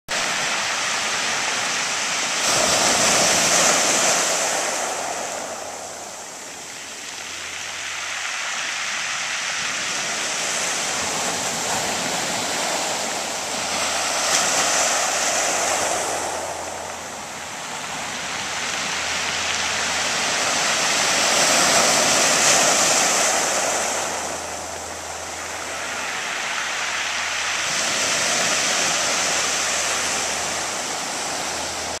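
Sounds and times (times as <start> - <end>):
waves breaking on pebbles: 0.1 - 32.0
water hissing over pebbles: 0.2 - 32.0.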